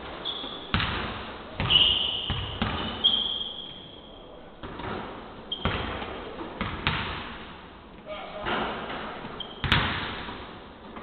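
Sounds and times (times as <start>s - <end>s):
sneakers squeaking on floor: 0.0s - 7.1s, 8.0s - 11.0s
basketballs bouncing on hardwood: 0.5s - 3.1s, 4.6s - 7.5s, 8.5s - 11.0s.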